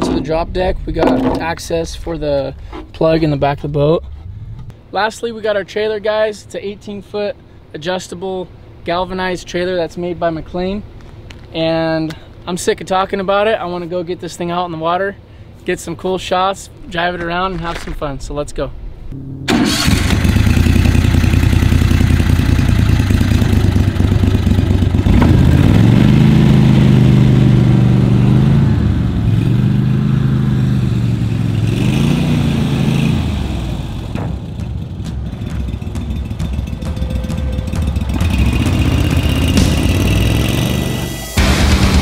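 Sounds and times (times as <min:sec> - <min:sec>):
mud motor running: 0:19.5 - 0:28.7.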